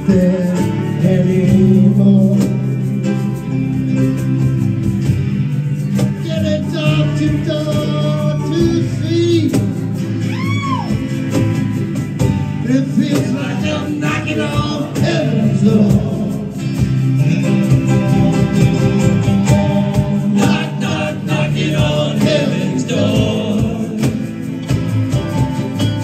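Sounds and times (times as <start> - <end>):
bass line: 0.0 - 26.0
strummed guitars: 0.0 - 26.0
voices singing: 12.5 - 25.0.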